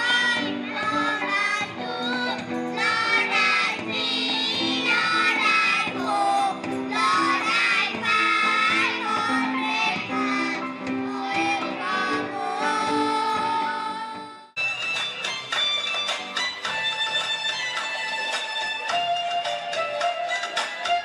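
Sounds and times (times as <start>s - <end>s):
children's choir singing: 0.0s - 14.5s
instrumental accompaniment: 0.0s - 21.0s.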